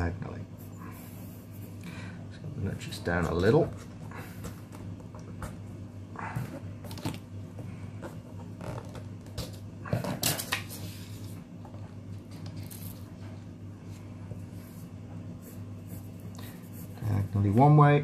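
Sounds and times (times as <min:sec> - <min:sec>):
steady low hum: 0:00.0 - 0:18.0
pencil scratching on paper: 0:14.6 - 0:17.7.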